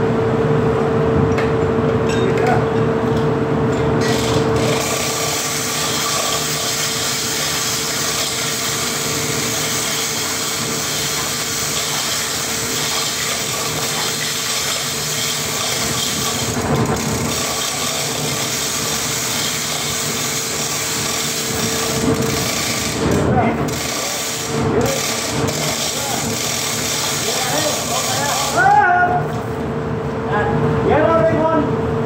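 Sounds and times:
loud hissing machine noise: 0:04.0 - 0:28.8.

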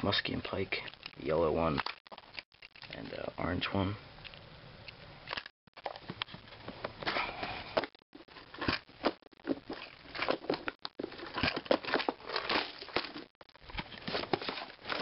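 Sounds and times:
plastic box clicks and rattles: 0:08.5 - 0:15.0.

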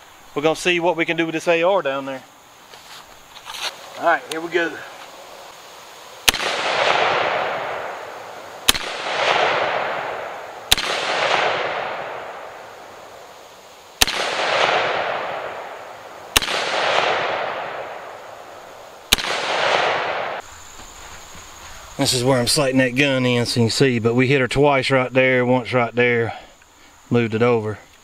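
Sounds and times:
rifle shots with echo: 0:06.2 - 0:12.7, 0:14.0 - 0:18.3, 0:19.1 - 0:20.4.

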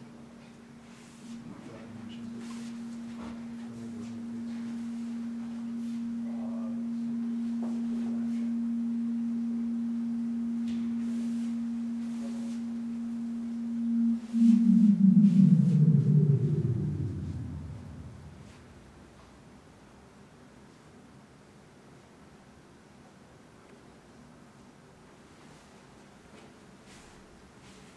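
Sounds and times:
electronic sine drone tone: 0:00.0 - 0:19.0
deep rumbling gong-like sound: 0:02.0 - 0:18.8.

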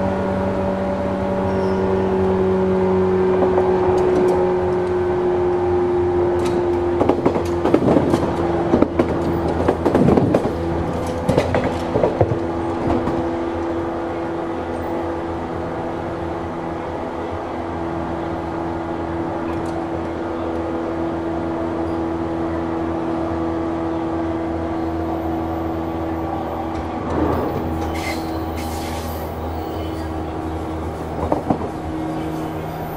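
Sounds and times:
train traction motor whine: 0:00.0 - 0:32.9
gangway plates clanking: 0:26.6 - 0:32.8.

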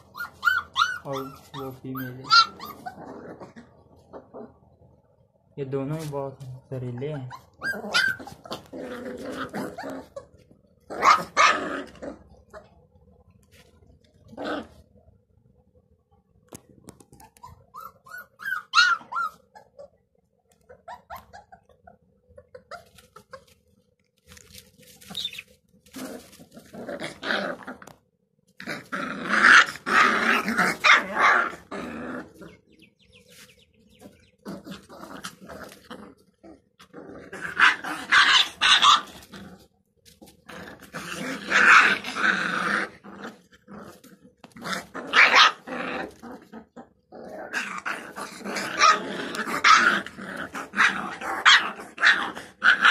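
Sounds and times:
puppy yelp: 0:00.0 - 0:03.4, 0:07.0 - 0:08.7, 0:10.9 - 0:11.6, 0:17.2 - 0:20.0, 0:20.7 - 0:23.5, 0:25.0 - 0:25.5, 0:37.5 - 0:39.2, 0:45.1 - 0:45.7
puppies growling: 0:00.0 - 0:05.5, 0:06.4 - 0:52.9.

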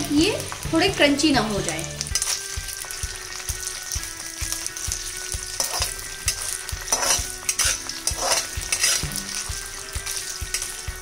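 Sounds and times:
potato sizzling in hot oil: 0:00.0 - 0:11.0
steel spatula scraping pan: 0:05.6 - 0:09.6.

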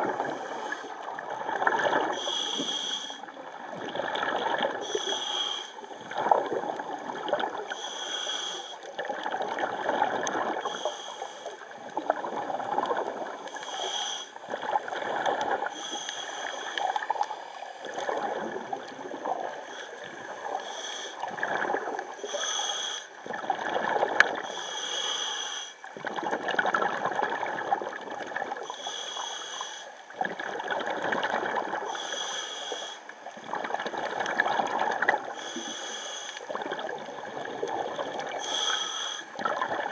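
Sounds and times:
gurgling exhaled bubbles: 0:00.0 - 0:05.2, 0:05.8 - 0:07.8, 0:08.8 - 0:10.9, 0:11.6 - 0:13.7, 0:14.4 - 0:20.6, 0:21.2 - 0:22.5, 0:23.2 - 0:24.6, 0:25.8 - 0:28.7, 0:30.1 - 0:32.0, 0:33.2 - 0:35.4, 0:36.5 - 0:38.7, 0:39.3 - 0:39.9
regulator inhale hiss: 0:00.2 - 0:01.1, 0:02.1 - 0:03.4, 0:04.8 - 0:06.1, 0:07.7 - 0:08.9, 0:10.6 - 0:11.8, 0:13.5 - 0:14.5, 0:15.7 - 0:18.1, 0:19.6 - 0:21.3, 0:22.2 - 0:23.2, 0:24.4 - 0:25.9, 0:28.6 - 0:30.1, 0:31.8 - 0:33.4, 0:35.3 - 0:36.6, 0:38.0 - 0:39.4.

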